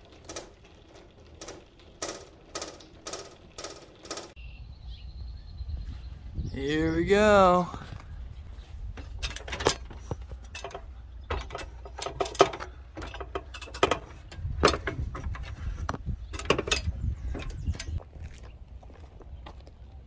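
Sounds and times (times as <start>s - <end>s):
gear rattling against ladder: 0.0s - 4.4s, 8.9s - 18.0s
boots on metal ladder rungs: 8.9s - 18.0s.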